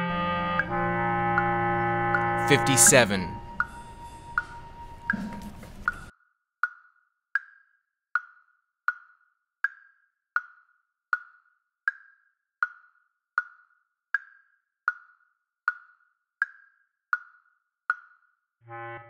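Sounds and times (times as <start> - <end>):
low bass clarinet note: 0.0 - 5.6, 18.7 - 19.0
wood-block metronome clicks: 2.1 - 18.4.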